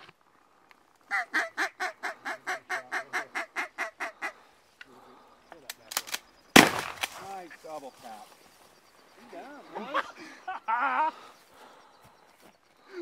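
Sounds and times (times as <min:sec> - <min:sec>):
mallard quacking: 0:01.1 - 0:04.4.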